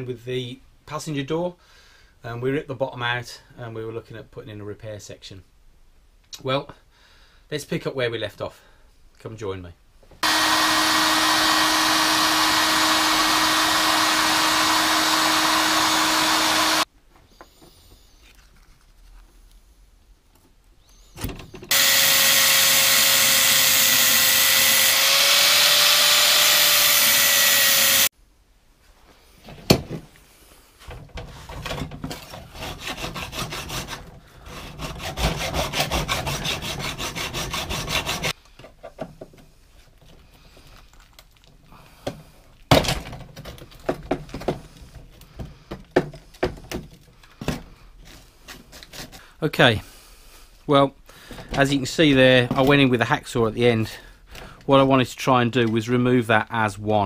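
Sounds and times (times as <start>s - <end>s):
angle grinder cutting metal: 10.2s - 16.9s, 21.7s - 28.1s, 35.0s - 38.4s
hacksaw cutting metal: 10.2s - 16.9s, 21.7s - 28.1s, 32.5s - 38.4s.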